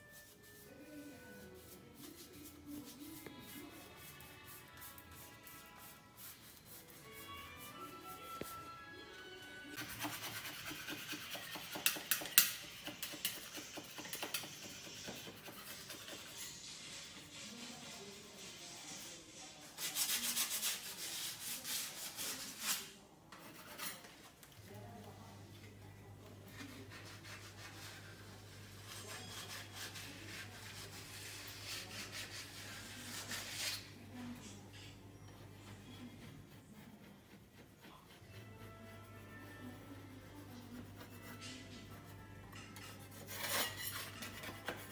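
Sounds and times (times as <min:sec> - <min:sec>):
paintbrush rubbing on wall: 0:00.0 - 0:08.6, 0:09.7 - 0:23.9, 0:26.4 - 0:34.5
hand tool rubbing wall: 0:09.8 - 0:24.0.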